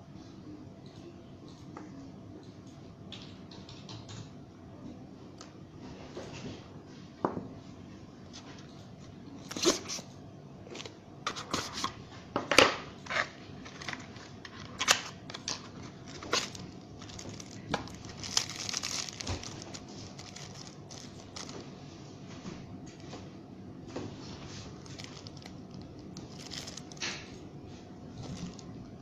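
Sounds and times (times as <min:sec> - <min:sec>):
plastic bag crinkling: 0:13.6 - 0:21.8, 0:24.6 - 0:27.4, 0:28.1 - 0:29.0.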